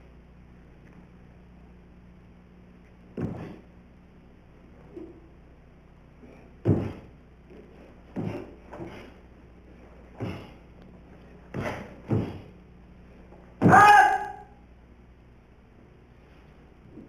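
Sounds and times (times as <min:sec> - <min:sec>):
faint steady hum: 0:00.0 - 0:17.0
feet thudding on floor: 0:03.1 - 0:03.7, 0:06.6 - 0:09.2, 0:10.0 - 0:10.6, 0:11.5 - 0:12.6.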